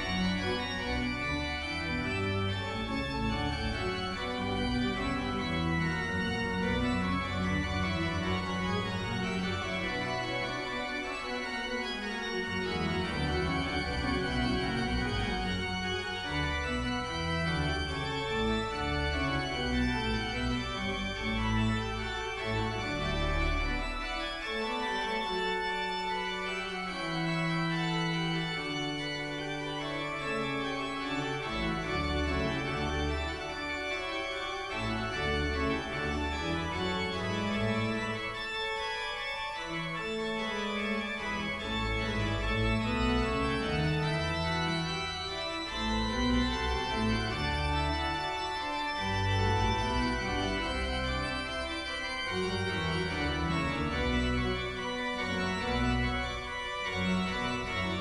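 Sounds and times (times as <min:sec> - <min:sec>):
organ music: 0:00.0 - 0:58.0.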